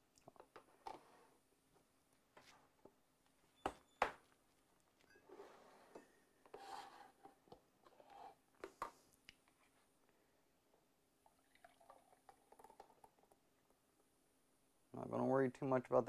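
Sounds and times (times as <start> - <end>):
soft rubbing scrape: 5.2 - 8.4.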